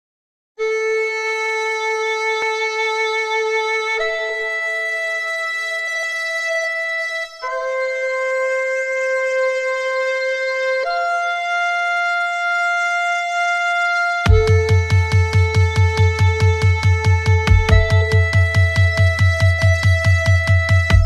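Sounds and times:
held woodwind chords: 4.1 - 21.0.

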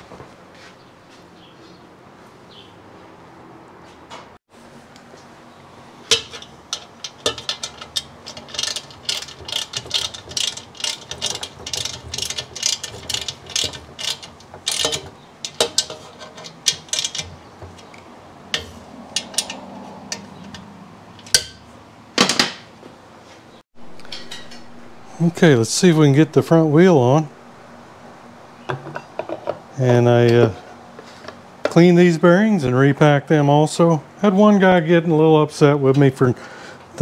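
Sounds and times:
hand ratchet clicking: 6.1 - 17.4.

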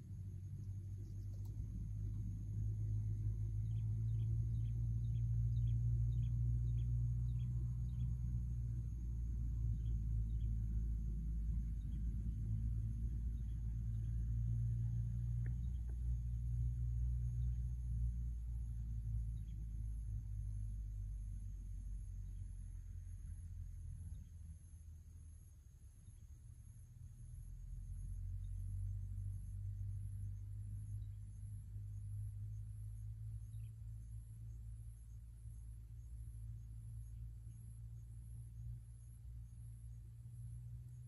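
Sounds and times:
low rumble: 0.0 - 41.0
faint click: 1.1 - 2.2.

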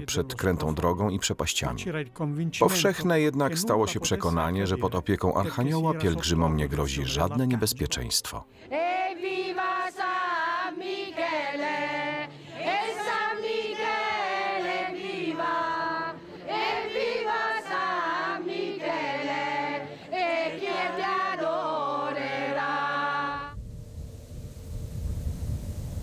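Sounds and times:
group singing devotional song: 8.6 - 23.6.

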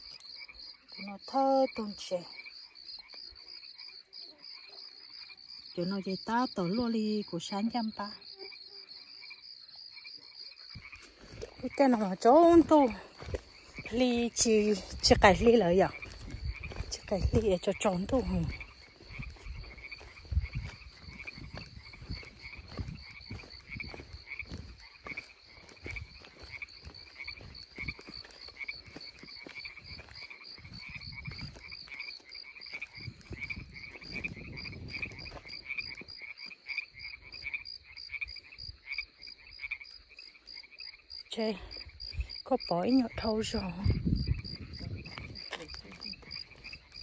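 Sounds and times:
frogs calling: 0.0 - 47.0
footsteps on dirt: 10.5 - 36.8, 43.6 - 47.0.

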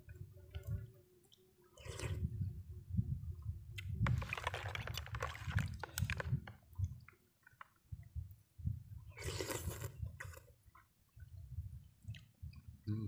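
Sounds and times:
liquid sloshing: 4.0 - 7.8
soft chewing: 9.1 - 12.7.

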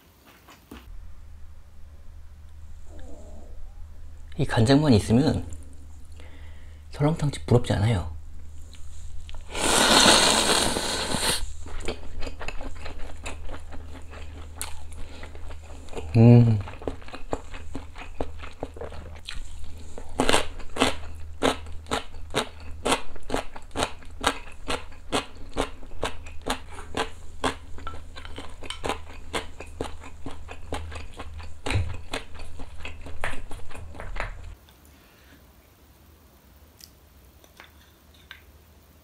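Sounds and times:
crunchy food being chewed: 0.1 - 0.9, 8.4 - 34.6
steady low hum: 0.8 - 34.6.

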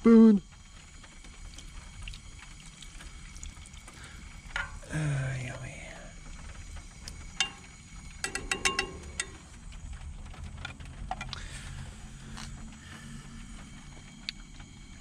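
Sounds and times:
low steady hum: 0.0 - 15.0
plastic spoon knocking on metal: 7.4 - 9.5.

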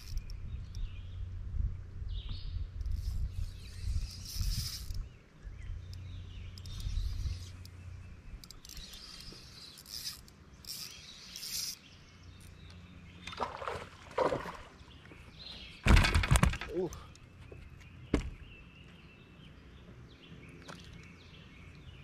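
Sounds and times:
water lapping against boat hull: 13.2 - 15.0.

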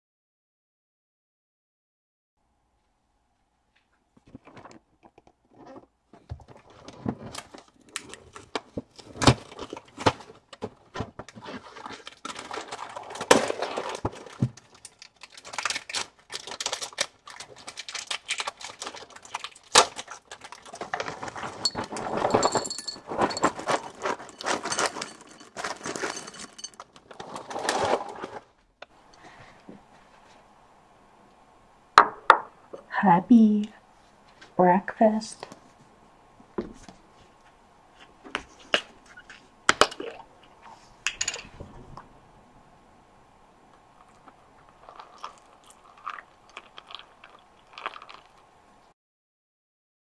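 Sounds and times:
cereal bag rustling: 11.4 - 28.5, 44.0 - 48.4
cereal pouring into bowl: 24.3 - 28.1, 44.8 - 48.4.

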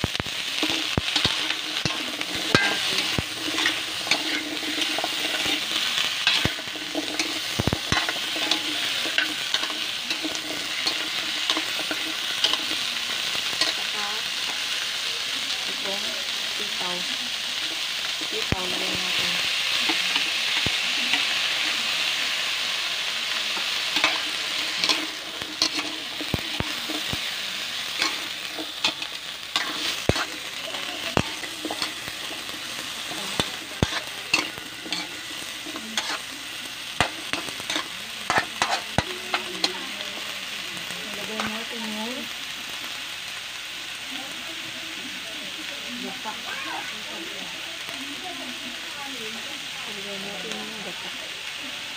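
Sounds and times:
vegetables sizzling in a wok: 0.0 - 51.9
spatula scraping a pan: 0.2 - 14.8, 23.3 - 39.7.

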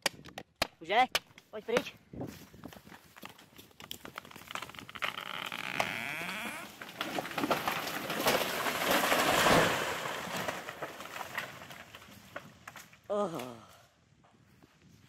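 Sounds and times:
branches snapping: 2.8 - 13.6
tree hinge wood creaking: 3.2 - 12.4
tree crashing down: 3.8 - 13.1.

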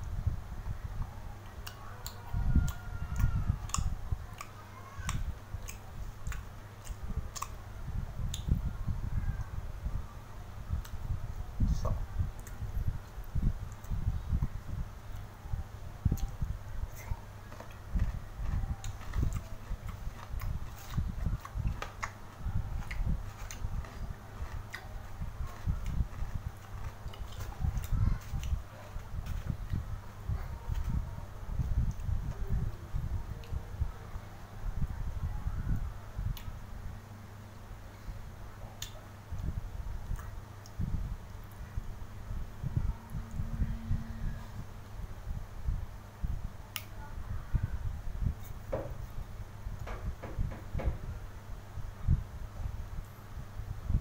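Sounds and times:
uneven low rumble: 0.0 - 54.0
mouth clicks and smacks: 38.8 - 41.6
low rumbling handling noise: 47.1 - 52.3.

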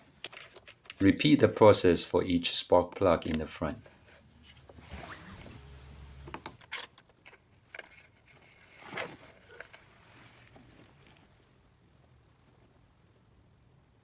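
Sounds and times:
plastic and metal clicks and rattles: 0.2 - 1.6.

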